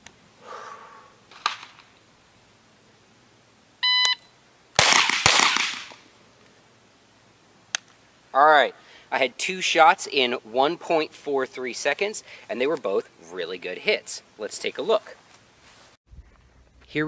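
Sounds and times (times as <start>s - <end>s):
shot timer beep: 3.8s - 4.3s
carbine gunshots: 4.8s - 6.0s.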